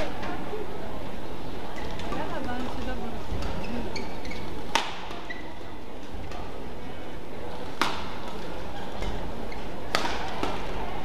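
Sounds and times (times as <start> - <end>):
hall background noise: 0.0 - 11.0
rackets smacking shuttlecock: 4.6 - 5.3, 7.6 - 10.8.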